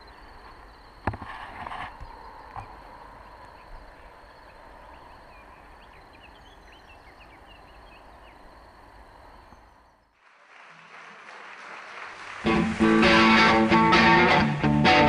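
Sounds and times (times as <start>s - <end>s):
small birds chirping: 1.9s - 10.1s.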